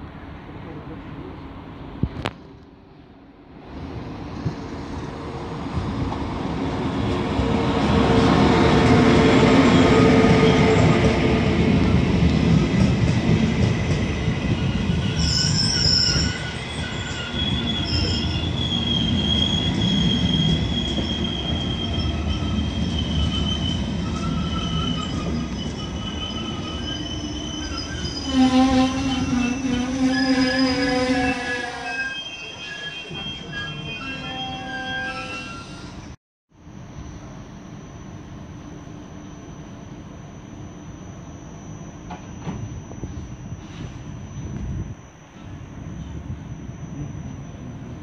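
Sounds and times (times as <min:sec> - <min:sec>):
brake and wheel squeal: 0:14.6 - 0:36.2.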